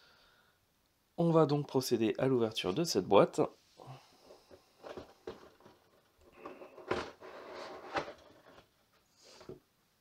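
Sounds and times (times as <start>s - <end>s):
cardboard lid sliding off box: 6.4s - 8.6s.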